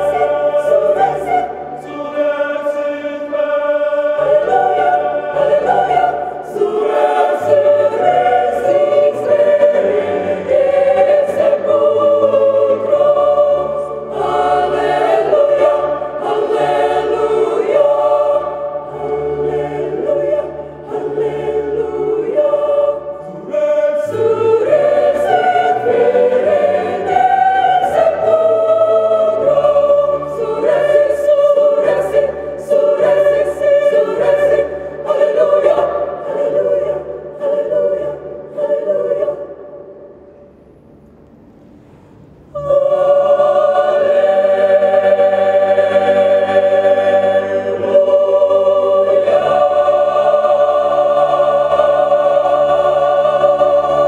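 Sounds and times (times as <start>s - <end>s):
mixed choir singing in harmony: 0.0s - 54.0s.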